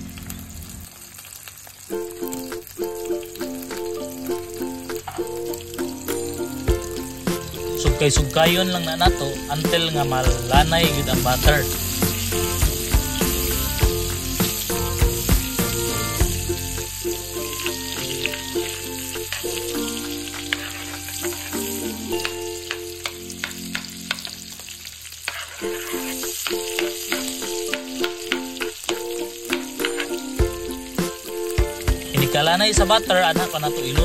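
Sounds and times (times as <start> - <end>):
butter sizzling in hot oil: 0.0 - 34.0
background music: 1.9 - 24.9, 25.7 - 34.0
metal ladle scraping a wok: 10.8 - 24.4, 25.2 - 27.9.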